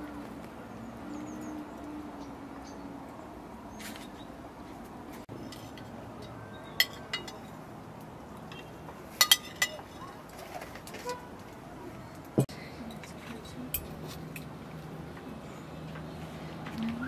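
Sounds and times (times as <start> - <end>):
tableware clinking: 5.4 - 7.6, 8.5 - 10.1.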